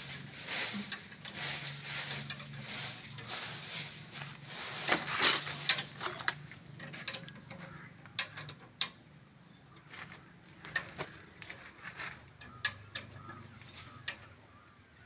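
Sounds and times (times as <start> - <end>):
metal clinks and clanks: 4.9 - 9.0, 12.4 - 14.3.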